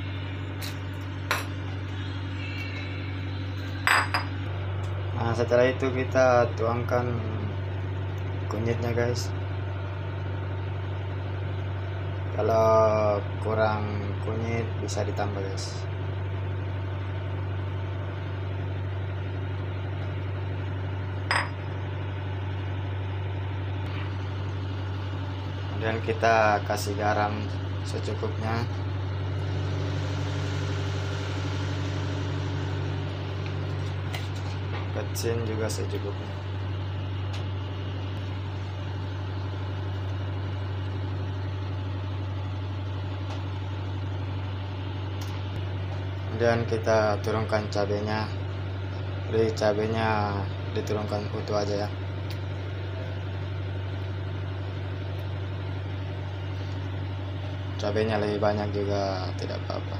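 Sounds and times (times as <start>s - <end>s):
broth boiling hard: 0.0s - 59.9s
steady low hum: 0.0s - 59.9s.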